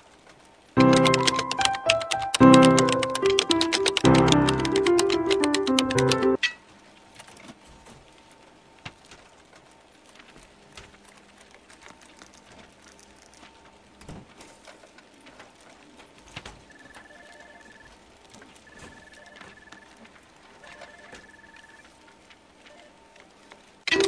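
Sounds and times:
faint clicks and taps: 0:00.3 - 0:06.3
background music: 0:00.8 - 0:06.4.

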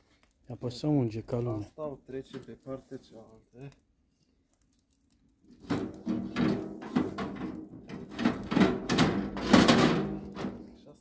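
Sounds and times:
fat scraping across grill grate: 0:05.5 - 0:10.7.

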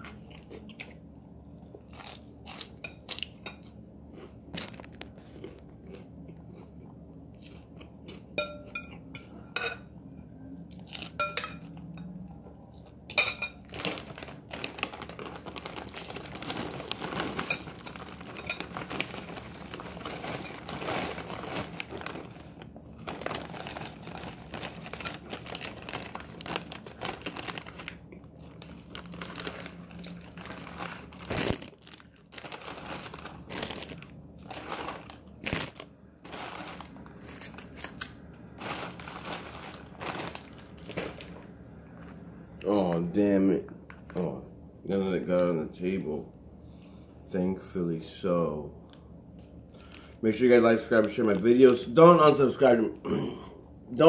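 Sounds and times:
plastic bag crinkling: 0:04.5 - 0:05.3, 0:13.6 - 0:42.2, 0:50.8 - 0:52.0.

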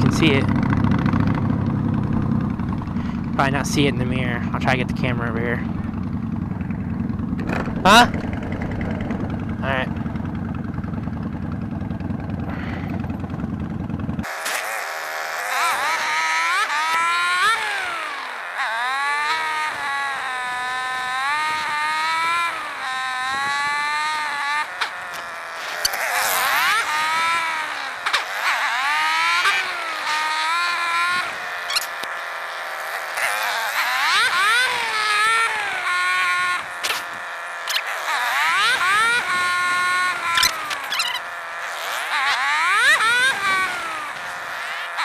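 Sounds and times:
wind rumble: 0:00.0 - 0:14.2
motorcycle engine running: 0:00.0 - 0:45.0.

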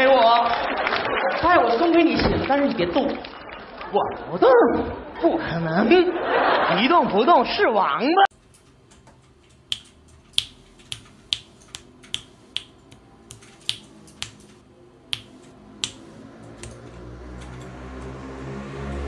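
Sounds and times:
sharp finger snaps: 0:09.7 - 0:17.0.

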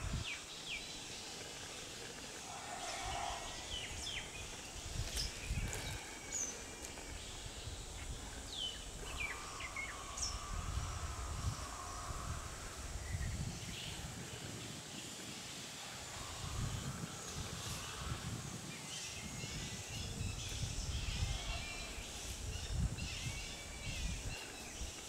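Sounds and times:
birds chirping: 0:00.0 - 0:14.1
faint insect buzz: 0:00.0 - 0:25.0.

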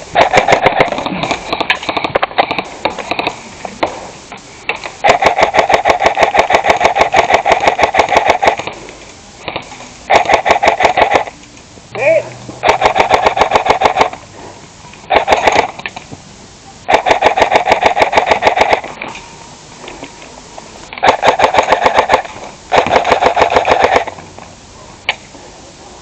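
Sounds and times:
paintball marker rapid firing: 0:00.0 - 0:03.4, 0:04.7 - 0:08.8, 0:09.5 - 0:11.4, 0:12.6 - 0:14.2, 0:15.1 - 0:16.0, 0:16.9 - 0:19.0, 0:21.0 - 0:24.3.

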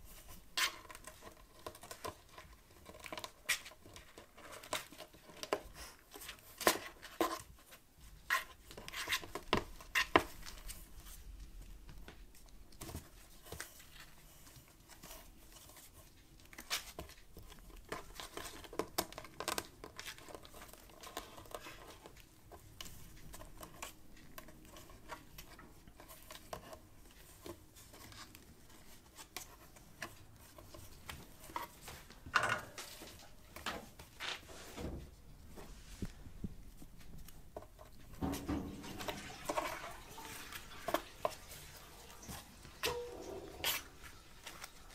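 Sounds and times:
kittens scratching on cardboard: 0:00.0 - 0:32.2.

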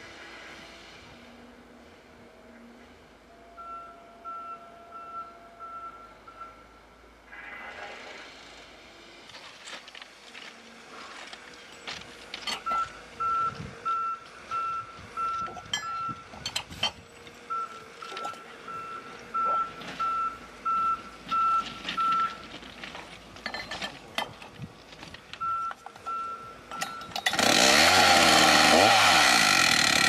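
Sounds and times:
reversing alarm beeping: 0:03.2 - 0:07.8, 0:12.5 - 0:16.6, 0:17.4 - 0:22.4, 0:25.4 - 0:27.4.

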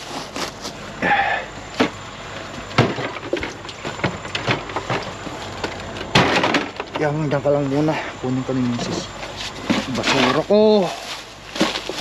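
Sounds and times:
household items clattering in crate: 0:02.7 - 0:07.3, 0:08.9 - 0:12.0.

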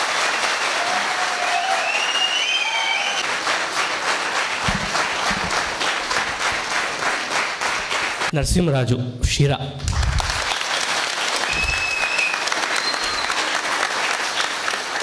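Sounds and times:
audience clapping: 0:00.0 - 0:08.4, 0:09.8 - 0:15.0
high call from crowd: 0:00.7 - 0:03.3
low thumps: 0:04.6 - 0:05.8.

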